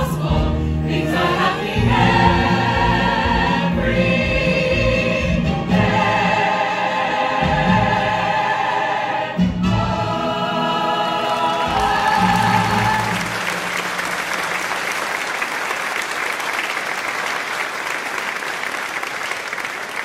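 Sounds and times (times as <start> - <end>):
cast singing together: 0.0 - 13.3
audience applause: 11.4 - 20.0.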